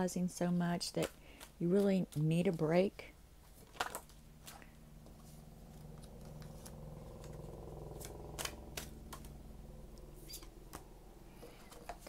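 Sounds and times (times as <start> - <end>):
faint steady hum: 0.0 - 12.0
cards being shuffled: 0.8 - 2.8, 3.4 - 9.4
card snaps: 8.0 - 9.3.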